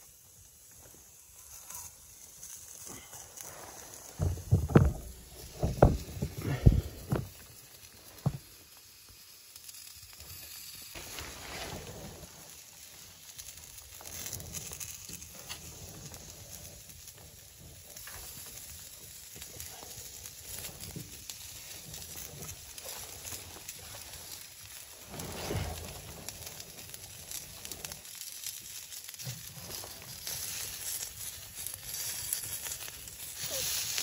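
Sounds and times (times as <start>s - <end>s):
faint steady hiss: 0.0s - 34.0s
soft handling noises: 2.8s - 8.6s.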